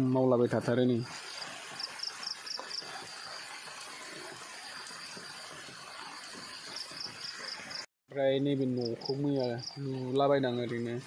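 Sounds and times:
insect buzzing chirp: 1.1 - 7.8.

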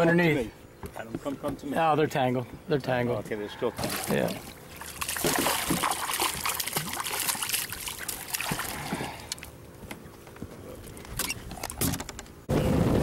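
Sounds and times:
water splashing and dripping: 3.8 - 9.5.

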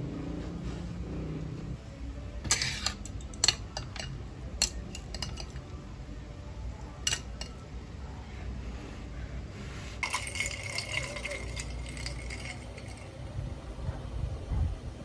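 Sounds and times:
chopsticks clinking on bowl: 2.5 - 5.7, 7.0 - 7.6, 10.0 - 13.1.

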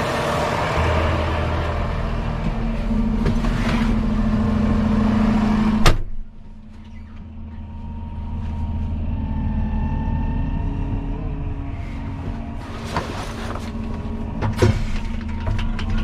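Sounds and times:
tractor diesel engine idling: 0.0 - 16.0
cab door banging shut: 5.8 - 6.3.

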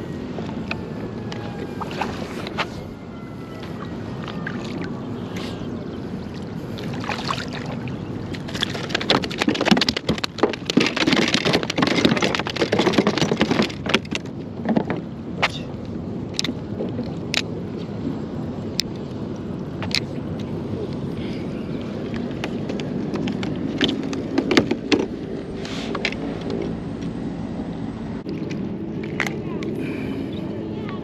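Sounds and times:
water sloshing against kayak hull: 1.4 - 2.8
splashes and knocks: 6.8 - 15.1.

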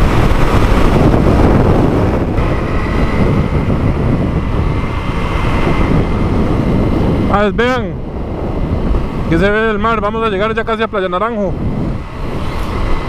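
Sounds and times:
motorcycle engine running: 0.0 - 10.4
wind rushing over microphone: 0.0 - 13.0.

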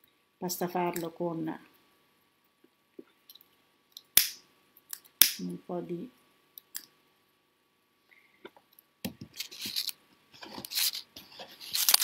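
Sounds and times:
hands rustling and scraping cloth: 9.2 - 12.0.

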